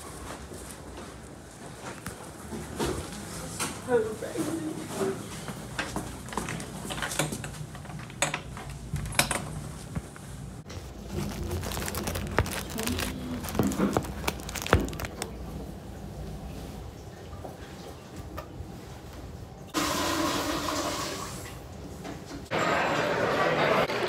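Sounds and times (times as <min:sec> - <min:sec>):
clothing rustling on microphone: 0:09.7 - 0:15.6.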